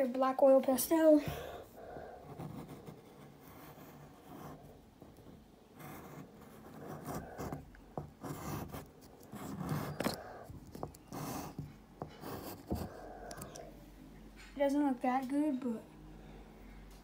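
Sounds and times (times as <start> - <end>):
pastel scratching on paper: 1.4 - 4.7, 5.8 - 13.5.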